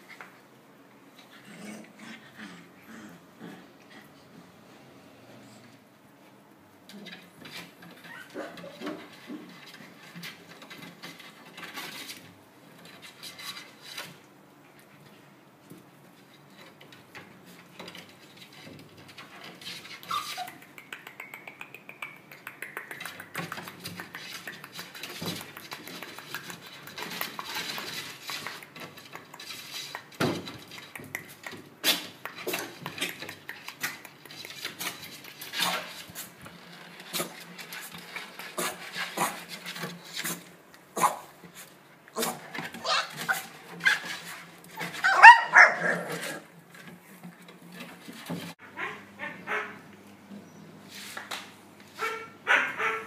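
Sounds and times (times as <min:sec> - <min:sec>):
puppy claws scratching on floor: 0:06.9 - 0:48.6
puppy whimper: 0:08.0 - 0:08.8, 0:20.0 - 0:20.6.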